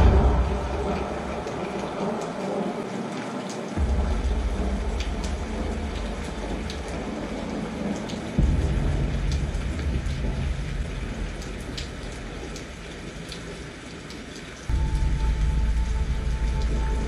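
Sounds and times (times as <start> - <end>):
low rumble: 0.0 - 2.5, 3.8 - 12.5, 14.7 - 17.0
rain falling: 0.0 - 17.0
raindrop ticks: 0.0 - 17.0.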